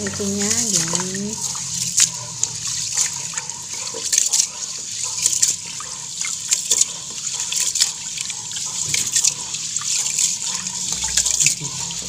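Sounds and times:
hands washing rice in water: 0.0s - 12.0s.

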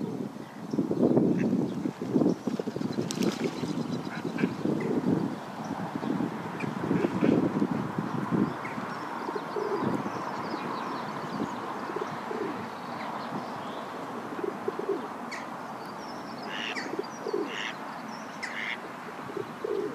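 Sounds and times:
birds cooing: 8.4s - 15.5s, 16.1s - 19.9s.

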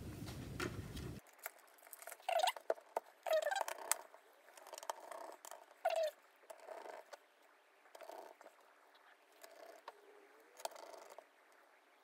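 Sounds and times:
squeaky screwdriver scrapes: 2.0s - 4.0s.

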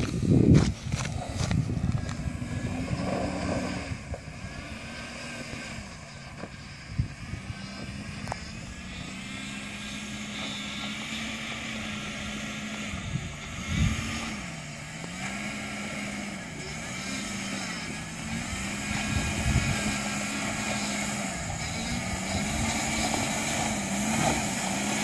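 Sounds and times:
car engine at low revs: 0.0s - 25.0s.

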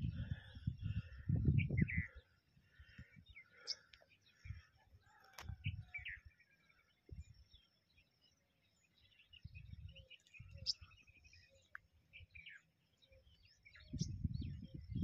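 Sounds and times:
low microphone rumbles: 0.0s - 2.2s, 13.9s - 15.0s
birds chirping and whistling: 0.0s - 15.0s.

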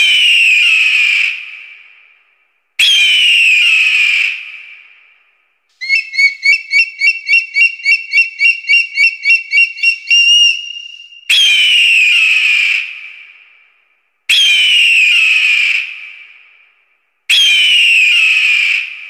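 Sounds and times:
eagle chattering piping notes: 5.8s - 11.0s
eagle screaming: 5.8s - 11.0s.

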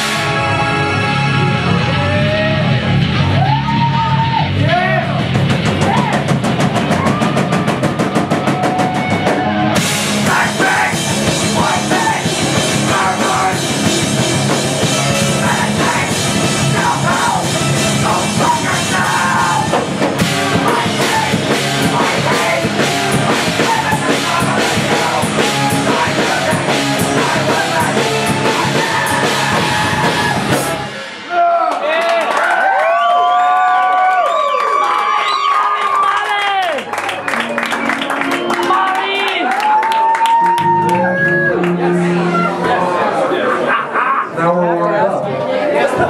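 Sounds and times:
electric guitar: 0.0s - 31.3s, 37.0s - 43.7s
drum kit: 0.0s - 31.8s.

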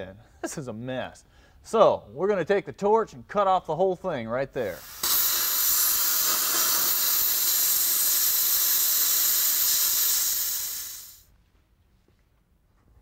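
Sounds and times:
cutting torch hissing: 4.7s - 11.3s.

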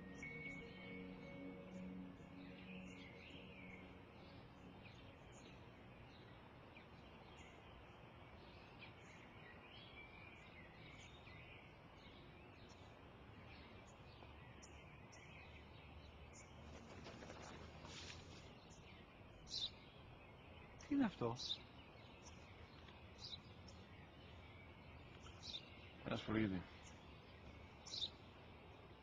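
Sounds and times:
small birds chirping: 0.0s - 29.0s.

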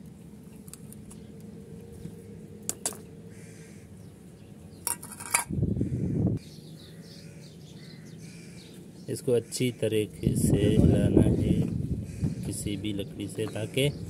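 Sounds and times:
metal paint tin lid clinking: 4.8s - 5.5s.

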